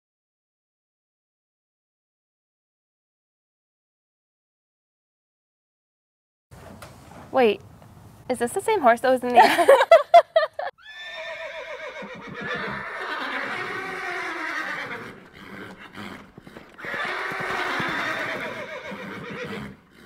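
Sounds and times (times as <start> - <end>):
horse neighing: 10.8 - 20.0.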